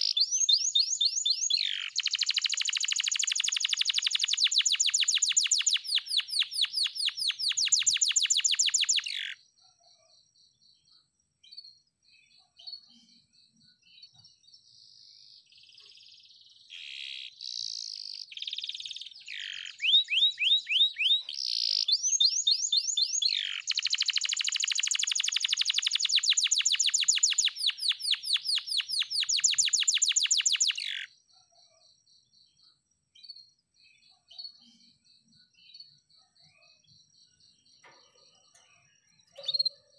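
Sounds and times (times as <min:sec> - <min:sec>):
canary singing: 0:00.0 - 0:09.4, 0:16.0 - 0:31.1, 0:37.8 - 0:39.9.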